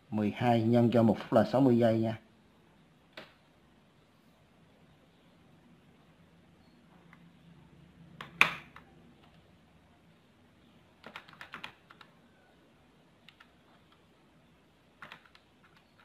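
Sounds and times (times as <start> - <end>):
plastic calculator keys clicking: 11.0 - 12.1, 13.2 - 14.0, 15.0 - 16.0.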